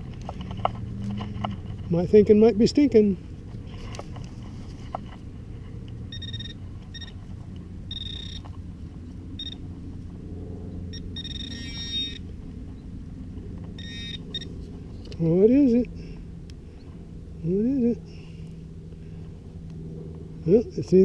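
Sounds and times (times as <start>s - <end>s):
low rumble: 0.0s - 20.5s
metal detector beeping: 6.1s - 7.2s, 7.9s - 8.5s, 9.4s - 9.7s, 10.9s - 12.8s, 13.8s - 14.6s.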